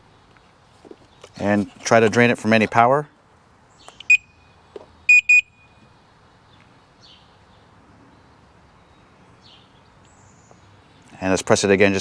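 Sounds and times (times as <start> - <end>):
high electronic beeps: 5.1 - 5.6.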